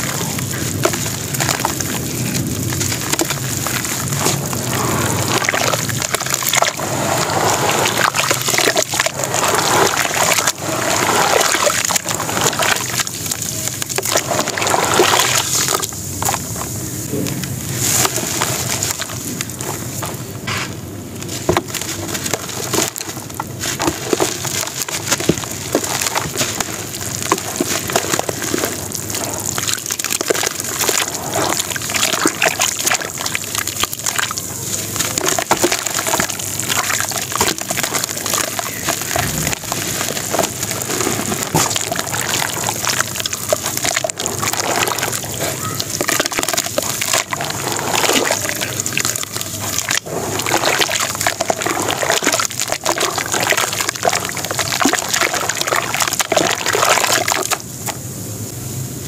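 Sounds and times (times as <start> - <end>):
gritty crackling of sand-cement: 0.0 - 58.0
wet sloshing: 0.0 - 58.0.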